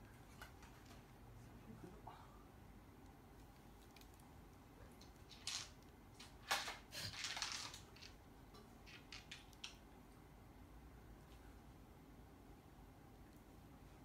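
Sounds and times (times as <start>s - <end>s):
plastic bag crinkling: 5.3s - 8.1s.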